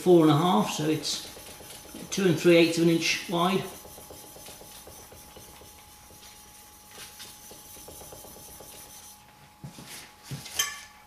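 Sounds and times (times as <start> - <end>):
blade rubbing on abrasive paper: 0.7 - 9.2.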